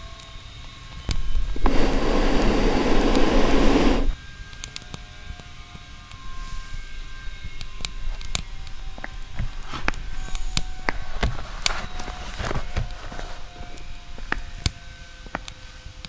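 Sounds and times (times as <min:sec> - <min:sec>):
small fire crackling: 0:00.0 - 0:16.0
steady low rumble: 0:01.1 - 0:04.2.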